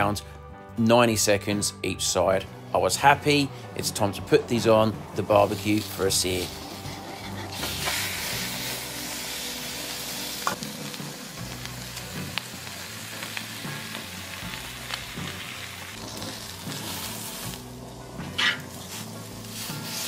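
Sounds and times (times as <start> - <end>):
meat sizzling on a barbecue plate: 5.2 - 20.0.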